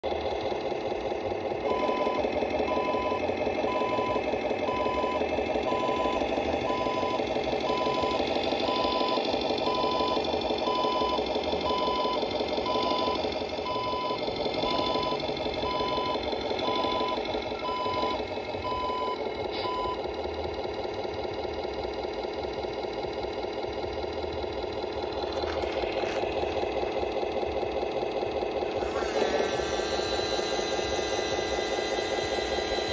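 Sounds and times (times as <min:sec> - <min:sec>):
simulated diesel engine running: 0:00.0 - 0:32.9
reversing beeper: 0:01.6 - 0:20.0, 0:28.8 - 0:32.9.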